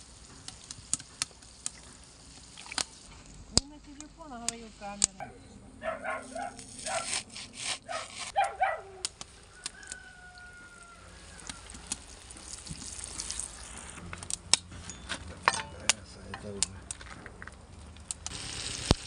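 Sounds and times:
hot oil sizzling: 0:00.0 - 0:05.2, 0:05.8 - 0:19.0
dog barking: 0:05.1 - 0:07.2, 0:07.9 - 0:09.0
knife slicing onion on board: 0:06.6 - 0:08.3.

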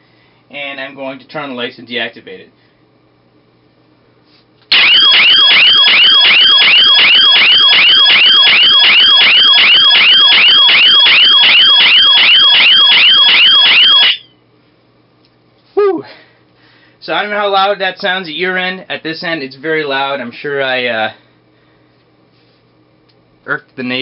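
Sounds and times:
electronic alarm siren: 0:04.7 - 0:14.4.

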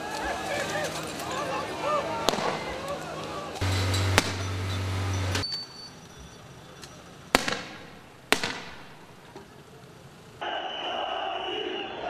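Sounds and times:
sharp crack: 0:02.2 - 0:05.0, 0:07.3 - 0:09.6
explosive bangs with echo: 0:03.7 - 0:04.9, 0:07.4 - 0:09.0.

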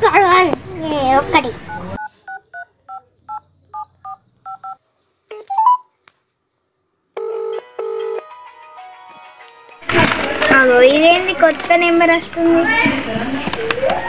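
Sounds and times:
phone keypad beeps: 0:01.7 - 0:05.9
phone ringback tone: 0:07.2 - 0:08.3.

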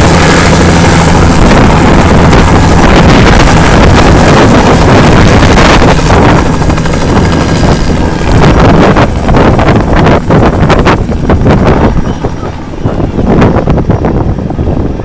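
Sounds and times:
helicopter engine and rotor: 0:00.0 - 0:15.0
wind buffeting microphone: 0:00.0 - 0:15.0.

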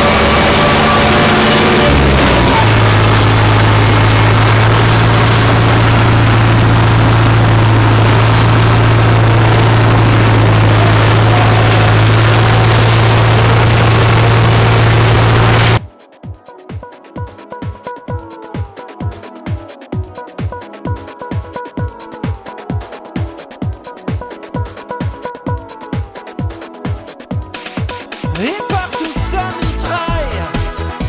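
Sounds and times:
tractor engine running: 0:00.0 - 0:15.8.

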